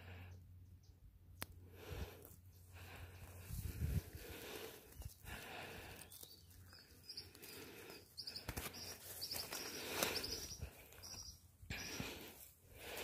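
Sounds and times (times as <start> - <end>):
small bird chirping: 5.9 - 12.2.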